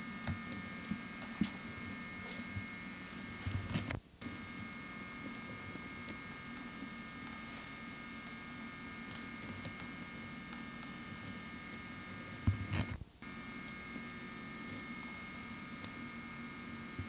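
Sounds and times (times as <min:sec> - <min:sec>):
faint high whine: 0:00.0 - 0:17.0
steady electrical hum: 0:00.0 - 0:17.0.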